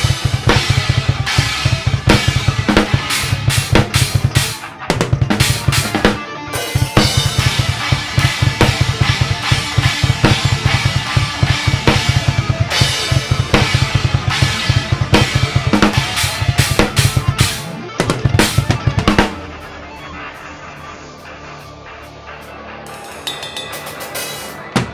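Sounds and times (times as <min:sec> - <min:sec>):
fast loud drum kit: 0:00.0 - 0:20.4, 0:22.9 - 0:24.9
backing music: 0:00.0 - 0:24.9
cymbal crashes: 0:18.4 - 0:24.9.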